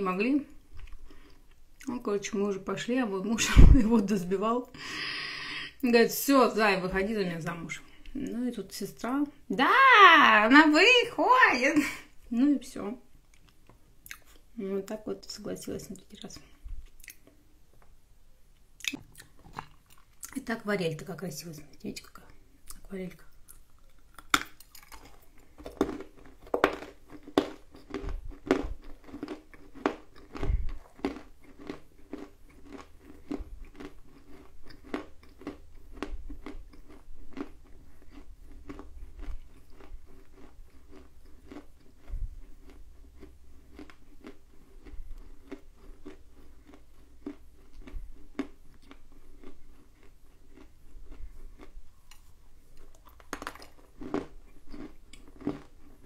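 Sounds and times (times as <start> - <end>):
person chewing crunchy clay: 0.5 - 1.9, 18.8 - 20.4, 22.6 - 56.0.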